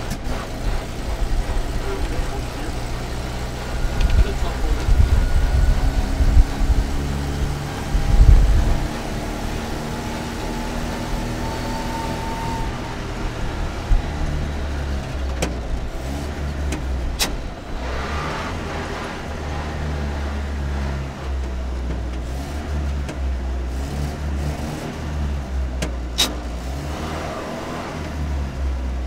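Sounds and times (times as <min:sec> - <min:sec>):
truck engine running: 0:00.0 - 0:29.0
heavy low thumps: 0:01.2 - 0:09.9, 0:12.6 - 0:17.9
sharp clicks: 0:03.9 - 0:04.4.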